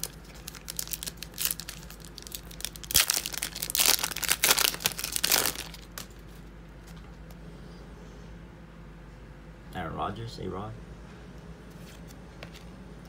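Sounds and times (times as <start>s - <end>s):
foil wrapper tearing and crinkling: 0.0s - 6.3s.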